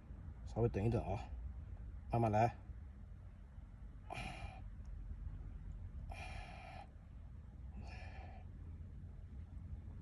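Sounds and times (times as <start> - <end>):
steady low rumble: 0.0 - 10.0
person breathing hard: 4.1 - 4.8, 6.0 - 7.1, 7.7 - 8.7.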